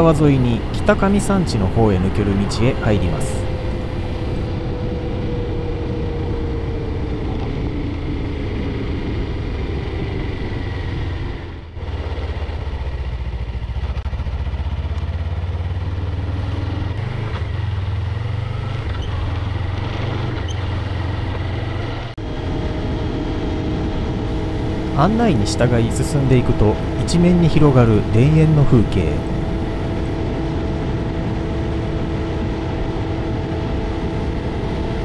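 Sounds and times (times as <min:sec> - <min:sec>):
vehicle engine drone: 0:00.0 - 0:35.0.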